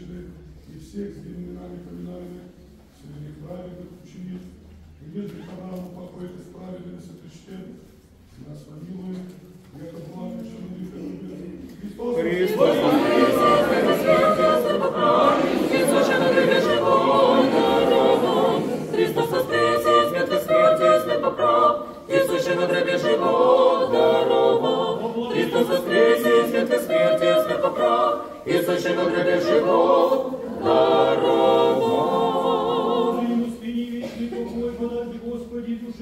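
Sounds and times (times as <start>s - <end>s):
church choir chanting unaccompanied: 11.9s - 36.0s.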